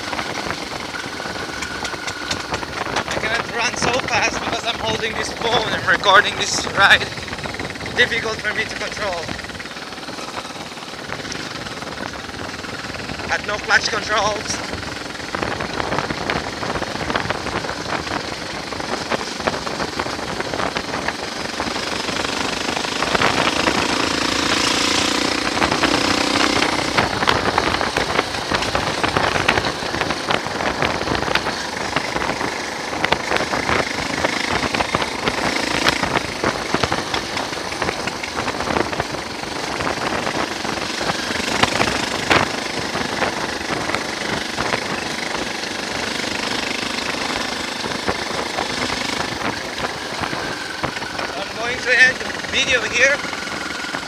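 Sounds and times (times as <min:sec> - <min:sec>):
motorcycle engine: 0:00.0 - 0:54.0
wind buffeting microphone: 0:00.0 - 0:54.0.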